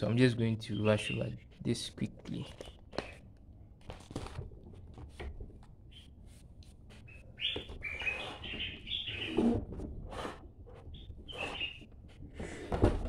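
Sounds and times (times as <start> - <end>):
paper rustling: 3.8 - 5.7.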